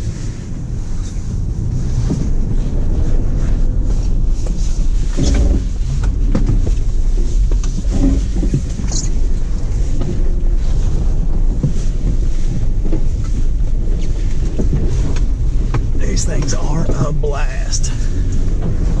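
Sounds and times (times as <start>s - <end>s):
truck rumbling over grass: 0.0s - 19.0s
wind buffeting microphone: 0.0s - 19.0s.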